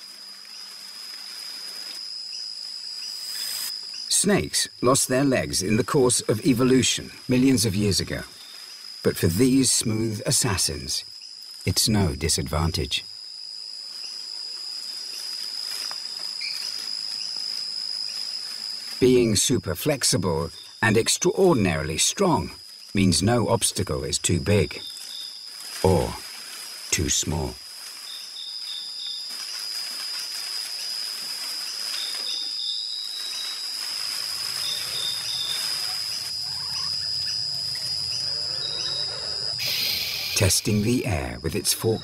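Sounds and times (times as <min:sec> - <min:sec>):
light hiss: 0:00.0 - 0:10.3, 0:24.8 - 0:38.1, 0:38.8 - 0:41.0
insects trilling: 0:00.0 - 0:42.0
hiss: 0:03.2 - 0:03.8, 0:39.0 - 0:40.8.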